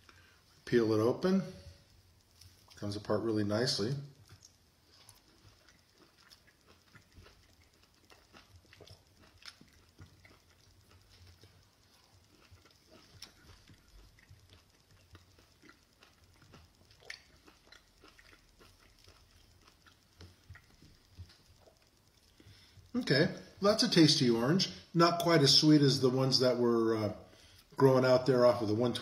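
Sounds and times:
person chewing wetly: 4.1s - 24.0s.

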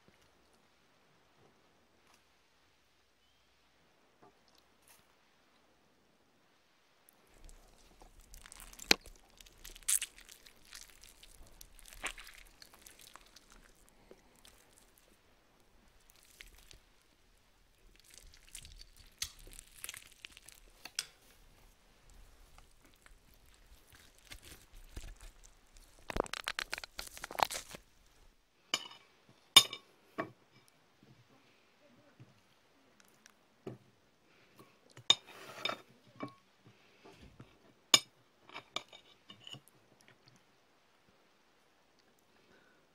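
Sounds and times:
chewing sticky food: 7.2s - 28.4s, 33.0s - 33.4s
crisp crunching and crackling: 7.3s - 28.4s
knife and fork clinking on plate: 28.8s - 29.9s.

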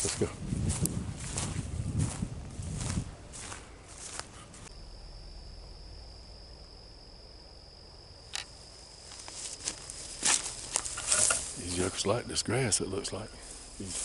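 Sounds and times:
footsteps in dry pine straw: 0.0s - 4.7s, 9.0s - 12.0s, 13.3s - 14.0s
insect trilling: 4.7s - 14.0s.

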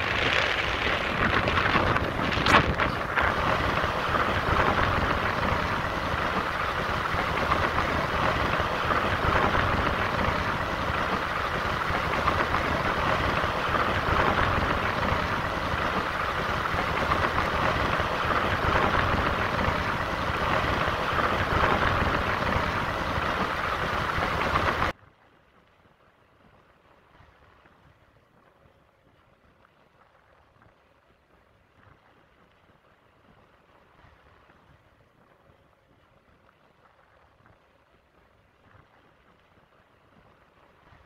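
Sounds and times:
engine rumble: 0.0s - 24.9s
wind and road noise: 0.0s - 24.9s.

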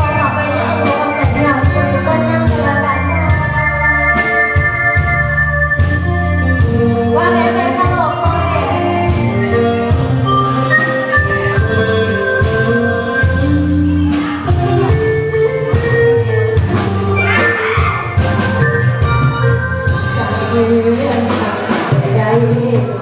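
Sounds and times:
electronic organ chords: 0.0s - 21.0s
band playing: 0.0s - 23.0s
drum kit beat: 0.0s - 23.0s
person singing: 19.9s - 23.0s.

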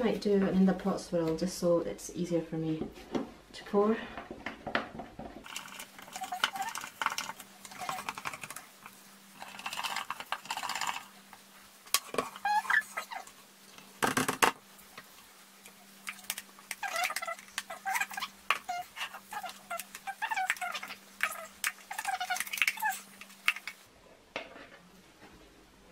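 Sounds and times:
faint steady hum: 0.0s - 25.9s
spatula scraping in plastic jug: 5.4s - 8.7s, 9.4s - 11.2s.

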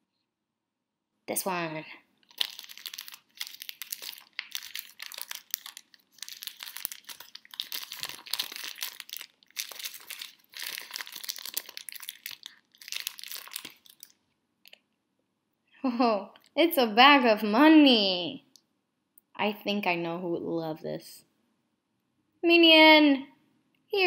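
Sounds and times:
wrapping paper crinkling and tearing: 2.2s - 14.2s.

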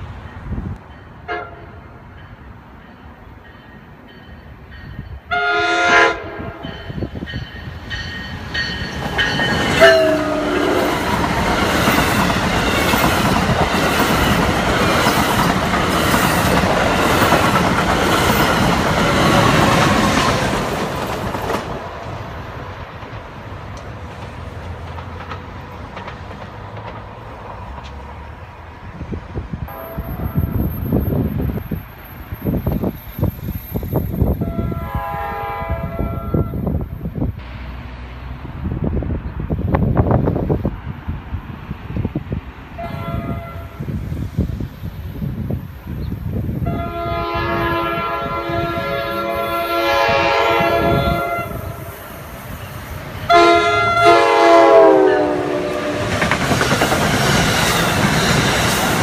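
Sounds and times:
train passing with rushing noise: 0.0s - 59.0s
train chime horn blasts: 1.2s - 1.9s, 5.3s - 7.0s, 8.6s - 11.0s, 29.7s - 31.0s, 34.4s - 36.7s, 42.8s - 43.8s, 46.6s - 52.0s, 53.2s - 56.1s
wheels clicking over rail joints: 10.9s - 28.2s, 56.0s - 59.0s.

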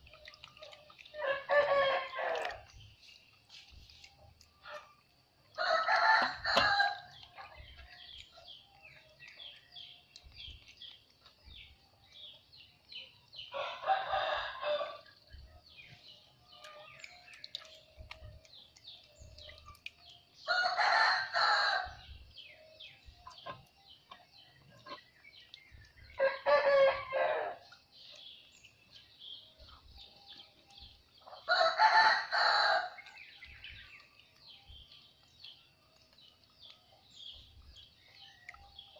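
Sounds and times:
high chirping of birds or insects: 0.0s - 38.9s
rooster crowing: 5.6s - 7.1s, 13.5s - 15.0s, 20.5s - 21.9s, 26.2s - 27.6s, 31.5s - 33.0s.

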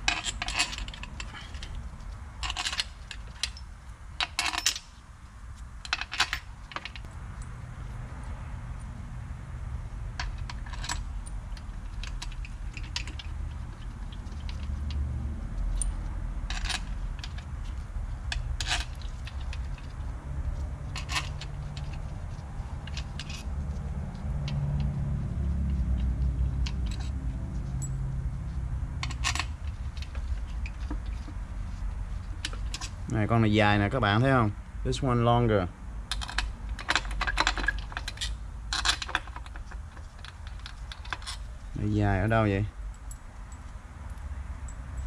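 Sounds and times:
metal bolts clinking: 0.0s - 1.8s, 2.4s - 4.9s, 10.2s - 15.0s, 20.9s - 23.5s, 36.1s - 41.4s
low steady rumble: 0.0s - 45.0s.

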